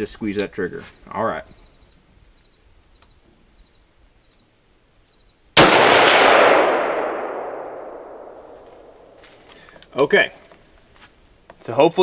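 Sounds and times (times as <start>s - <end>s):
rifle shot with echo: 5.6s - 9.2s.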